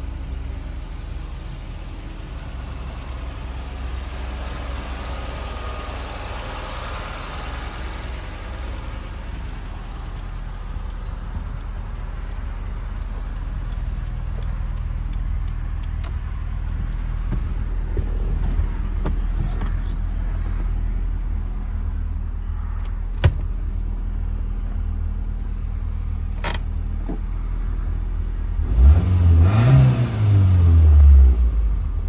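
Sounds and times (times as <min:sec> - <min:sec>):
car engine idling and revving: 0:00.0 - 0:32.0
sharp clicks: 0:09.4 - 0:17.1.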